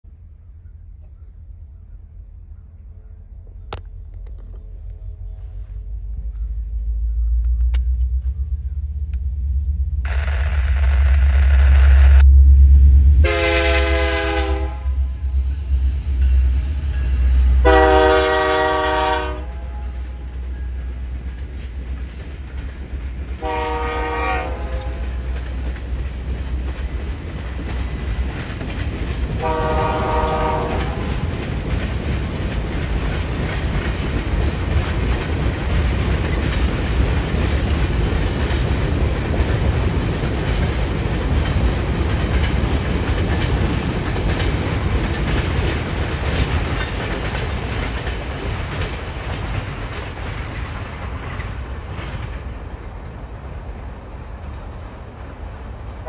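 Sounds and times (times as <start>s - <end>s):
diesel locomotive engine rumble: 0.0s - 56.0s
freight cars rumbling and clattering: 1.0s - 12.3s, 19.4s - 23.4s, 24.0s - 56.0s
train horn blasts: 12.0s - 21.1s, 23.4s - 25.4s, 29.3s - 31.3s.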